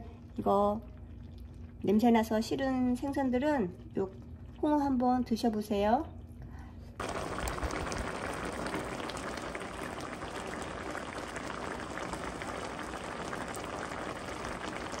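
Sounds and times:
sauce simmering with popping bubbles: 7.0 - 15.0.

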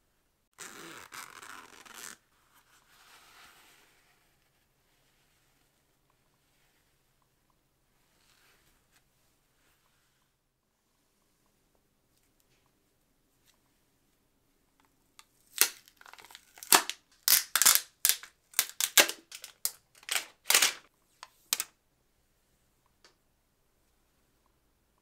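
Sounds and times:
plastic packaging crinkling: 15.5 - 21.7.

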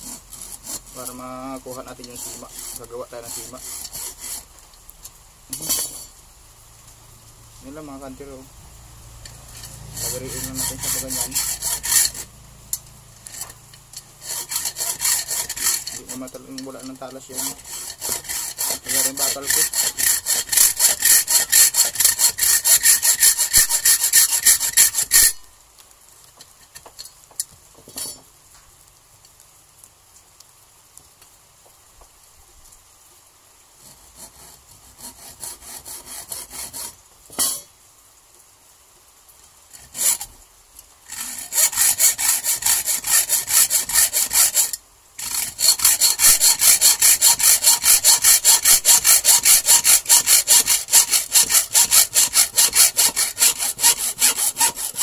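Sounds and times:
hacksaw cutting metal rod: 0.0 - 4.5, 5.5 - 6.1, 9.5 - 12.3, 13.2 - 25.5, 27.9 - 28.2, 34.1 - 37.7, 39.8 - 40.3, 41.1 - 55.0.

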